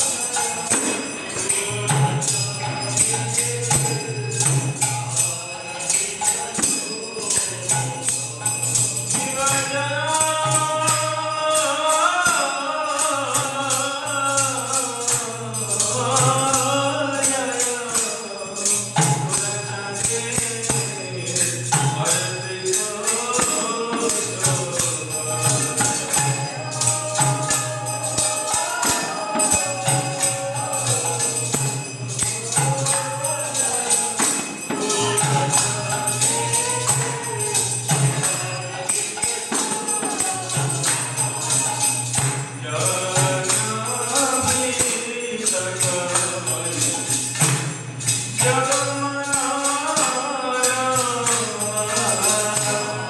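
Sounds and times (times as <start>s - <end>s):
group singing devotional song: 0.0s - 53.0s
hand cymbals beating: 0.0s - 53.0s.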